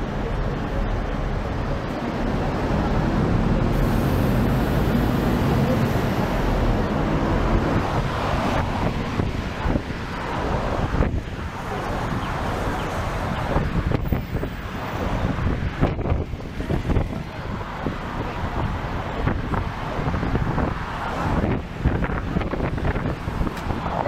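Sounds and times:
bus engine running: 0.0s - 24.0s
city street traffic: 0.0s - 24.0s
wind on microphone: 2.2s - 24.0s.

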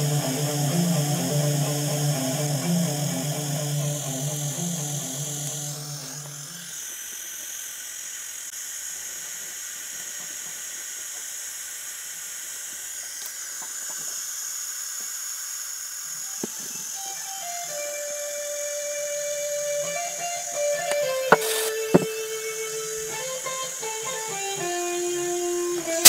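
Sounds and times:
background music with bass: 0.0s - 6.5s
steady high hiss: 0.0s - 26.0s.

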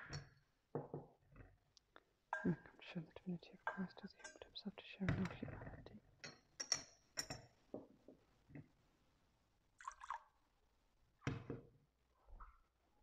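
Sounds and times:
metal vessels clinking: 6.2s - 7.6s.

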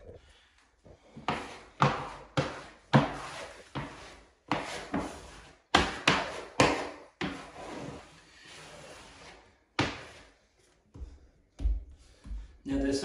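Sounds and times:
wallpaper rustling and scraping: 1.0s - 10.9s.

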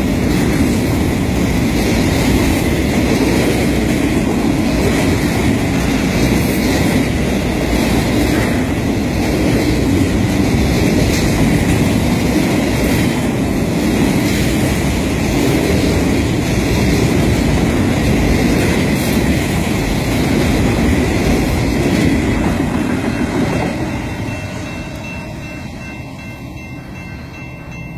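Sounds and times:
freight train wheels rumbling on rail: 0.0s - 27.9s.

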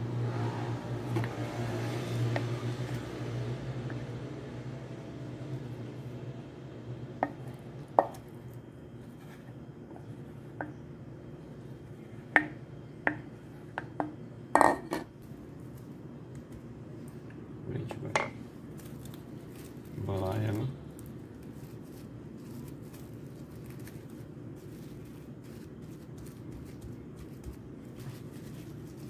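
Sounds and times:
low hum: 0.0s - 14.4s.

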